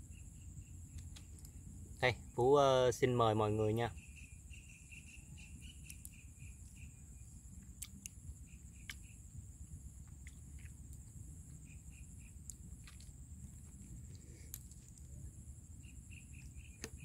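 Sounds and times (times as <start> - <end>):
insects trilling: 0.0 - 17.0
lower pulsing insect chirp: 0.0 - 17.0
faint sharp clicks: 8.8 - 9.1.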